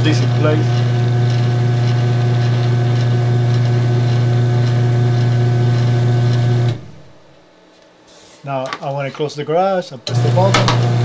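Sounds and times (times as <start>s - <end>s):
garage door opener motor humming: 0.0s - 7.4s, 10.0s - 11.0s.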